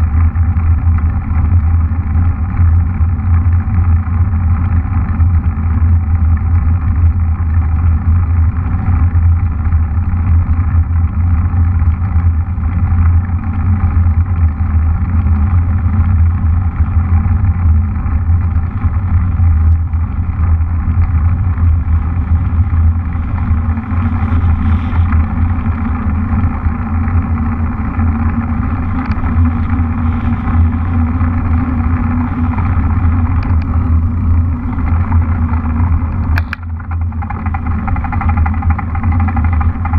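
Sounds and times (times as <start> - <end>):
muffled wind rumble on microphone: 0.0 - 39.9.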